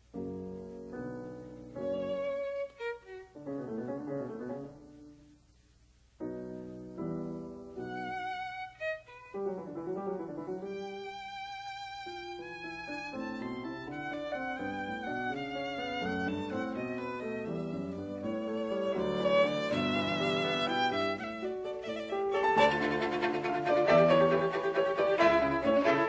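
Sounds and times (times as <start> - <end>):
violin melody with vibrato: 1.8 - 3.5, 7.8 - 26.0.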